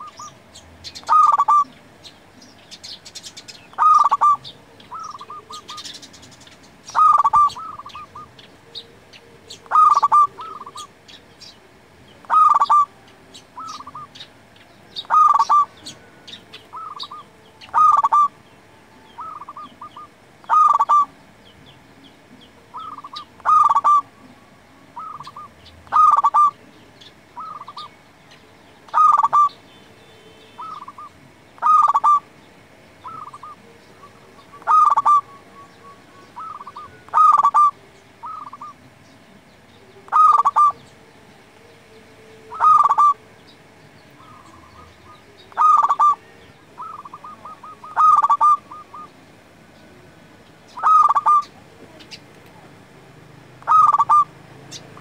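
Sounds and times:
dove cooing: 0:00.0 - 0:28.0, 0:28.8 - 0:29.6, 0:30.3 - 0:39.1, 0:39.7 - 0:52.7, 0:53.5 - 0:55.0.

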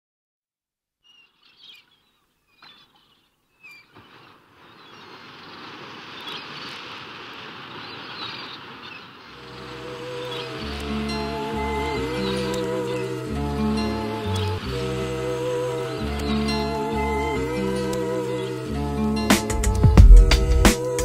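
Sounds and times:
bird chirps: 0:01.0 - 0:06.8, 0:07.6 - 0:11.2
soft music with low notes: 0:09.4 - 0:21.0.

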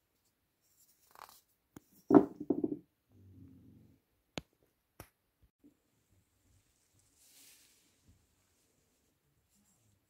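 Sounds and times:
wooden toy knocking on workbench: 0:02.1 - 0:02.8.

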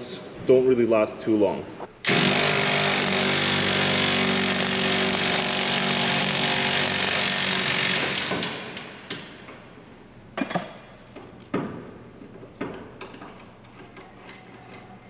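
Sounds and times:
impact wrench hammering: 0:02.0 - 0:09.7.

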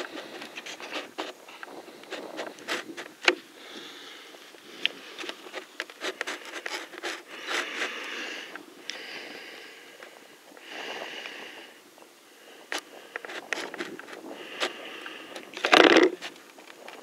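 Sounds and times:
breathy hissing: 0:00.0 - 0:16.2
rubbing: 0:05.0 - 0:08.5, 0:13.1 - 0:16.4.

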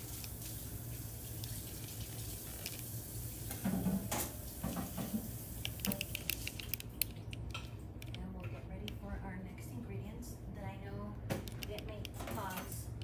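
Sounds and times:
tap water splashing: 0:00.0 - 0:06.4
steady low hum: 0:00.0 - 0:13.0.

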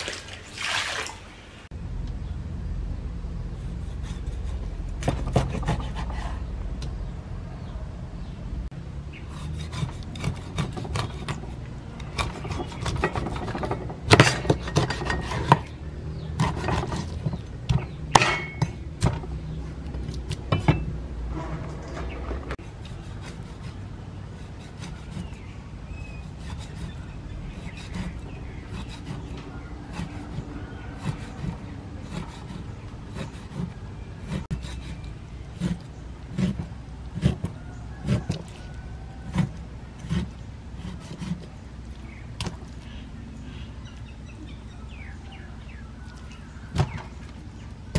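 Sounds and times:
rubbing and scraping: 0:03.4 - 0:06.5, 0:09.2 - 0:43.0
knife chopping on wooden board: 0:05.0 - 0:06.2, 0:27.6 - 0:35.0, 0:35.6 - 0:38.6, 0:39.3 - 0:41.5.

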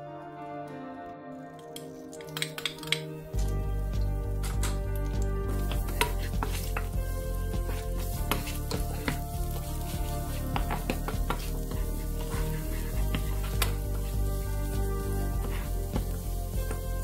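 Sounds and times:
garlic sizzling in oil: 0:02.3 - 0:17.0
spatula scraping pan: 0:05.5 - 0:17.0.

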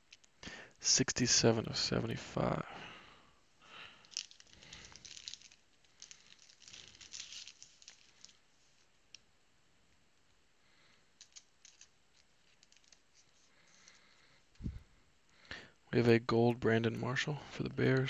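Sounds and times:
cards rustling and sliding: 0:04.0 - 0:08.9, 0:11.2 - 0:14.8.

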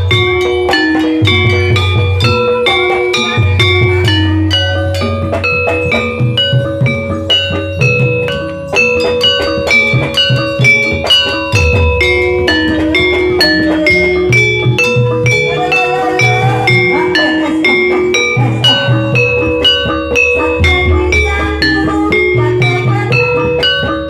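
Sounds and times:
hand drum beats: 0:00.0 - 0:24.0
metallophones ringing: 0:00.0 - 0:24.0.

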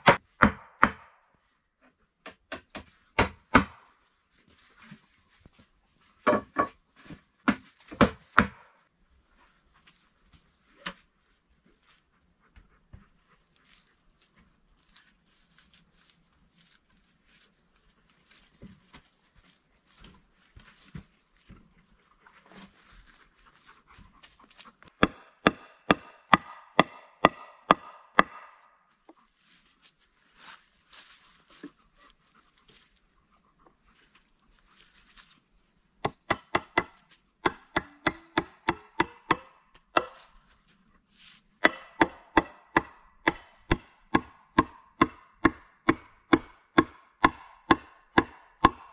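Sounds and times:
handling of wood: 0:04.3 - 0:08.6.

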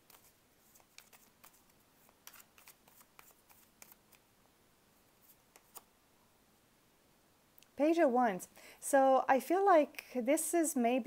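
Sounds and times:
cards being shuffled: 0:00.0 - 0:04.2, 0:05.2 - 0:05.9.

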